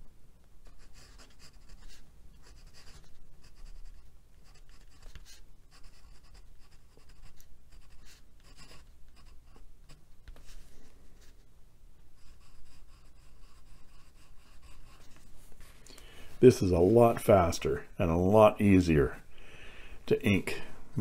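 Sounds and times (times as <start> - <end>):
pen nib scratching on paper: 0.6 - 10.0, 12.2 - 15.3.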